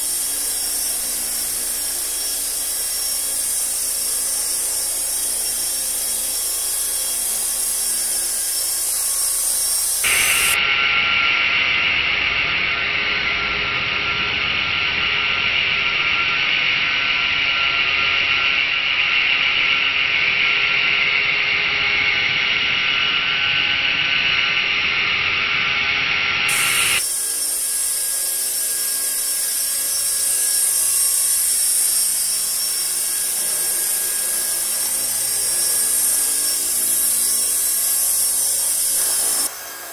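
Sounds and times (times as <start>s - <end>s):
electric motor high-pitched whine: 0.0s - 10.6s, 26.4s - 39.9s.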